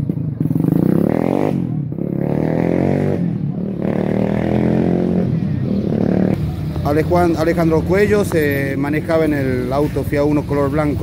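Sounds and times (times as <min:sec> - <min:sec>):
motorcycle engine accelerating: 0:00.0 - 0:08.5.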